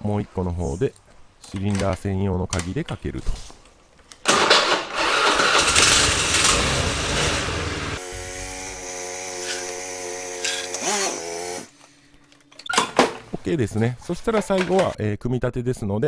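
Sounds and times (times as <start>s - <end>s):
scooter engine starting and idling: 4.3s - 8.8s.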